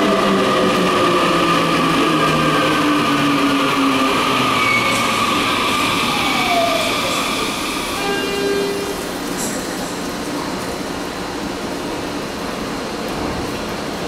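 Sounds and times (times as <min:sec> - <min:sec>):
electric train braking: 0:03.0 - 0:09.7.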